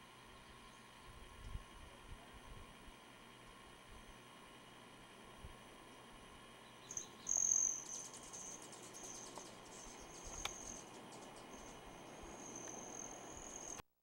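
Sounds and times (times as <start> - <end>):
insect trilling: 6.8 - 13.8
small click: 10.3 - 10.6.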